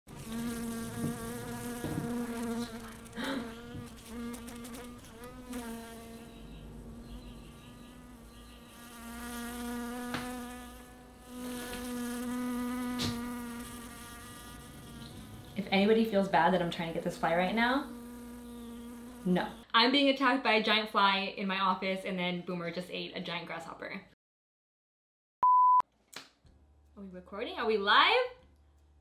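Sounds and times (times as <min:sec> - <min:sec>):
fly buzzing: 0:00.1 - 0:15.9, 0:16.9 - 0:19.7.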